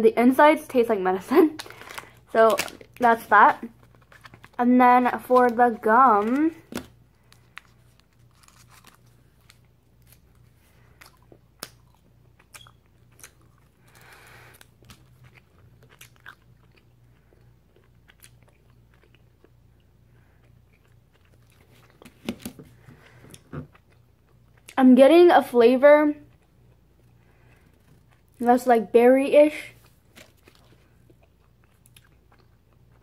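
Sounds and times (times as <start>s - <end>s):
low steady hum: 0.0s - 33.0s
gum wrapper crinkling: 1.4s - 19.6s, 29.8s - 33.0s.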